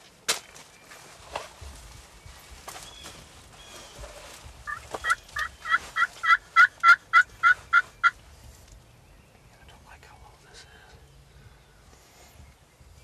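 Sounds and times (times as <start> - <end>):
turkey yelping: 4.7 - 8.2.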